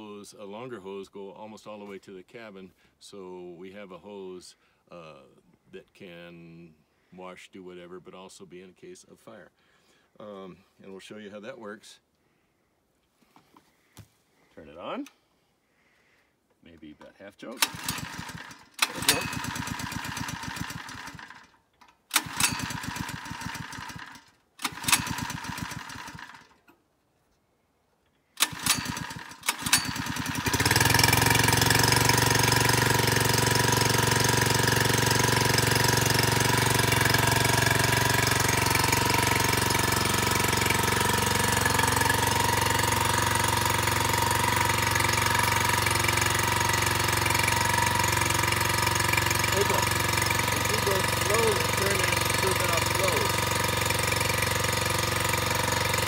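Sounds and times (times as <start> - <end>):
recoil starter pulls: 17.5 - 26.8, 28.4 - 56.0
small engine running: 17.6 - 26.6, 28.4 - 56.0.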